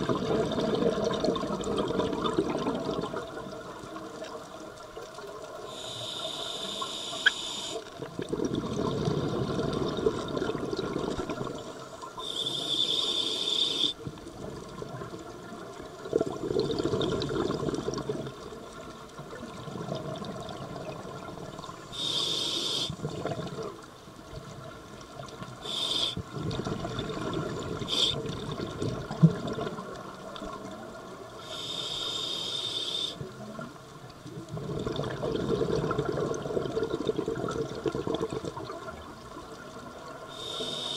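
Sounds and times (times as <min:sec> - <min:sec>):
exhaled bubbles: 0:00.0 - 0:04.3, 0:07.1 - 0:23.9, 0:25.2 - 0:30.8, 0:34.3 - 0:39.3
regulator inhale hiss: 0:05.6 - 0:07.9, 0:11.7 - 0:14.0, 0:21.9 - 0:23.0, 0:25.6 - 0:26.3, 0:27.9 - 0:28.2, 0:31.4 - 0:33.2, 0:40.3 - 0:40.9.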